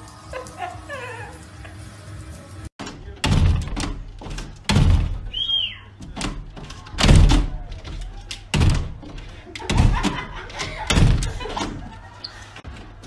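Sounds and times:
glass door thudding and rattling: 2.8s - 13.0s.

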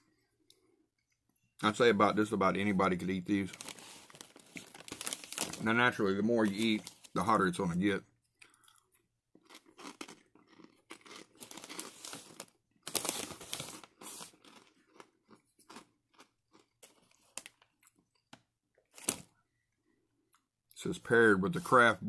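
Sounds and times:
person chewing crunchy food: 8.3s - 18.3s.

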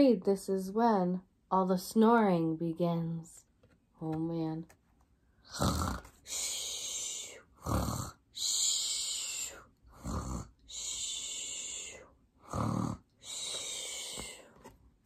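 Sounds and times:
woman making cartoon snores: 5.5s - 6.1s, 7.2s - 11.8s, 12.4s - 13.9s.

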